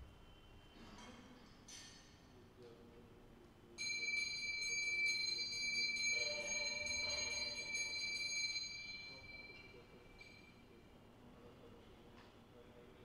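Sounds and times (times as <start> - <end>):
hand bell ringing: 3.8 - 10.5.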